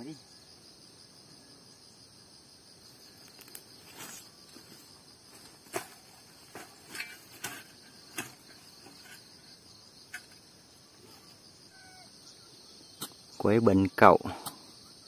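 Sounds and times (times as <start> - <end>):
insects trilling: 0.0 - 15.0
spade knocks and scuffs: 3.9 - 9.4, 10.0 - 10.4
spade pushed into soil: 5.5 - 9.4, 10.0 - 10.4.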